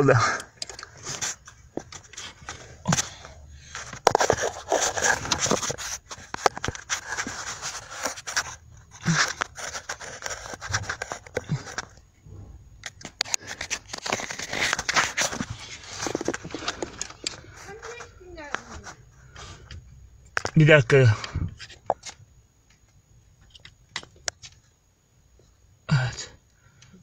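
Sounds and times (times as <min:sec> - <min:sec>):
hands scraping plastic trim: 0:00.4 - 0:12.0, 0:12.8 - 0:19.0.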